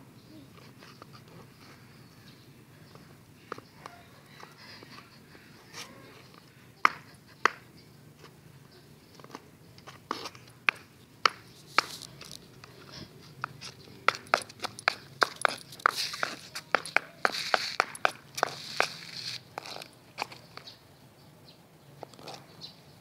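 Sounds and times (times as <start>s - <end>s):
high heels clacking on concrete: 9.2s - 12.8s, 13.4s - 20.7s.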